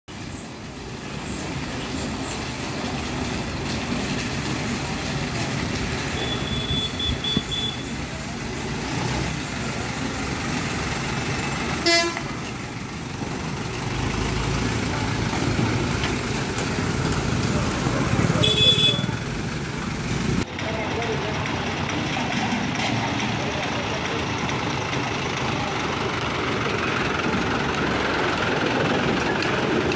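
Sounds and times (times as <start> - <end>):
lorry diesel engine running: 0.1 - 29.9
horn toot: 11.8 - 12.3, 18.4 - 19.1.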